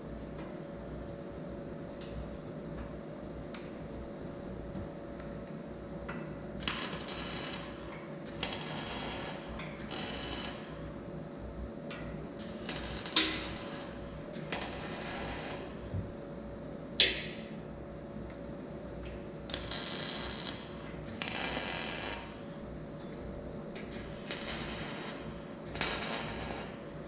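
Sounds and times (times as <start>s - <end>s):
steady shop hum: 0.0s - 27.0s
electric arc welding: 6.6s - 11.0s, 12.4s - 15.9s, 19.5s - 22.5s, 23.9s - 27.0s.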